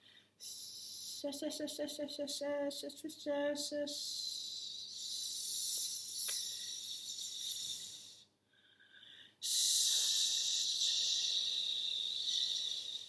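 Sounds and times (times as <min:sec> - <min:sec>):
woman making breathy hissing sounds: 0:04.0 - 0:08.3, 0:09.4 - 0:13.0.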